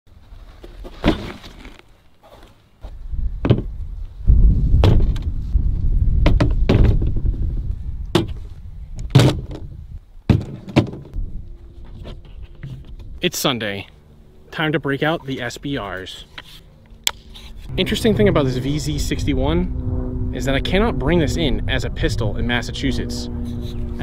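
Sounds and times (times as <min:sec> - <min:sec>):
low rumble: 0:02.9 - 0:09.0, 0:11.1 - 0:24.0.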